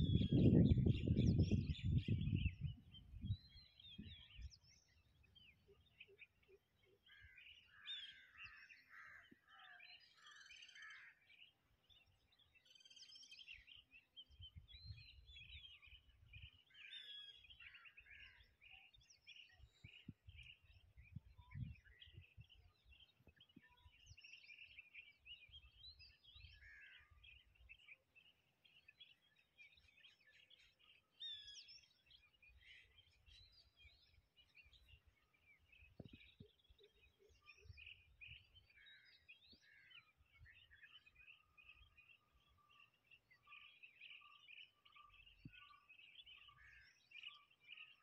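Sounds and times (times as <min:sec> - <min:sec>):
small birds chirping: 0:00.0 - 0:48.0.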